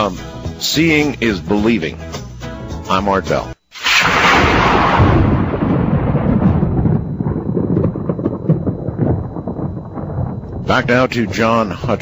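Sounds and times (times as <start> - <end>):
thunderclap: 3.8 - 11.4.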